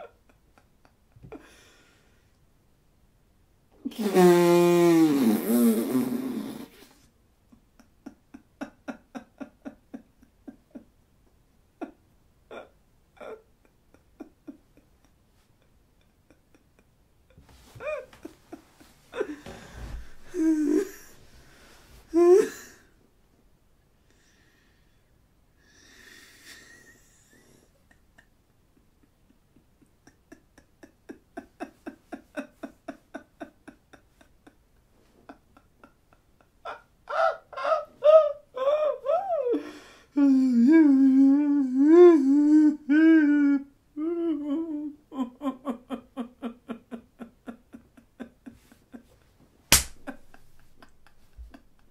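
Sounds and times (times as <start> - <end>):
man wheezing laughter: 0.0 - 1.8, 7.8 - 10.9, 16.0 - 21.2, 29.0 - 39.7, 44.4 - 49.2, 50.0 - 51.9.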